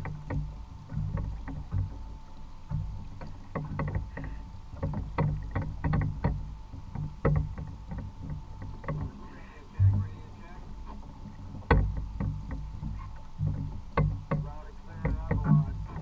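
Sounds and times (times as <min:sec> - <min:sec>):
faint steady tone: 0:00.0 - 0:16.0
low watery rumble: 0:00.0 - 0:16.0
waves knocking against kayak hull: 0:00.0 - 0:16.0.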